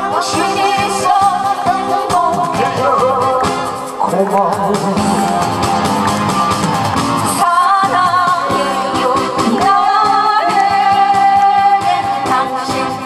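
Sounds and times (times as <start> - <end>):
man and woman singing a duet: 0.0 - 3.7, 7.4 - 13.0
instrumental accompaniment: 0.2 - 12.7.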